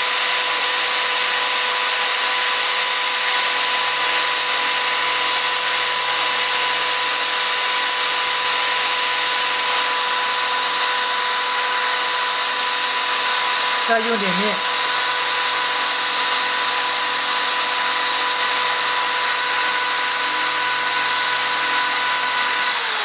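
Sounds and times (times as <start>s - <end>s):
electric drill whining: 0.0s - 23.0s.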